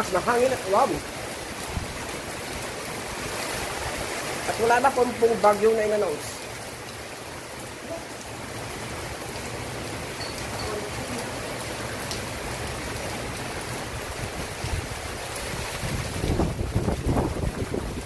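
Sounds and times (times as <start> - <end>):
heavy rain pouring: 0.0 - 18.0
gusty wind: 1.4 - 4.4, 13.8 - 18.0
wind buffeting microphone: 14.0 - 18.0.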